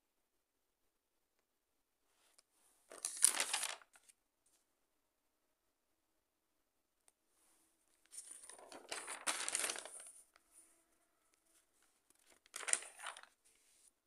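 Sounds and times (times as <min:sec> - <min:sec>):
notebook pages turning: 0:02.9 - 0:04.1, 0:08.1 - 0:10.2, 0:12.1 - 0:13.7.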